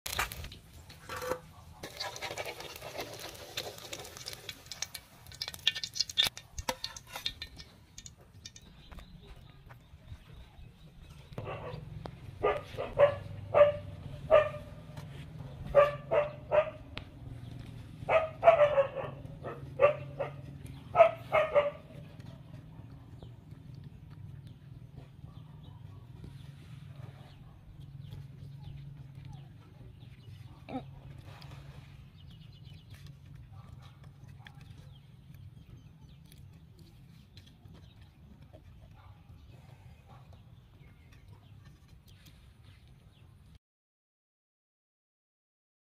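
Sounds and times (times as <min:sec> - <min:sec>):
monkey eating with smacking sounds: 0:00.1 - 0:12.4, 0:20.4 - 0:43.6
animal barking calls: 0:11.4 - 0:16.9, 0:18.0 - 0:23.3.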